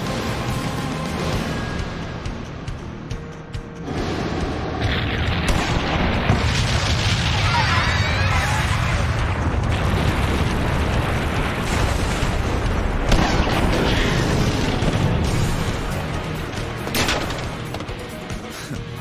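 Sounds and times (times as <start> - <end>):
music: 0.0 - 9.8, 11.4 - 19.0
loud rumbling explosion blast: 3.9 - 15.8.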